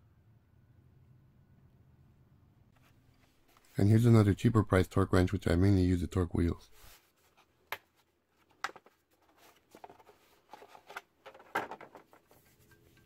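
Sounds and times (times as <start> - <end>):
gloved hands rubbing and rustling: 2.8 - 4.0, 6.7 - 11.4.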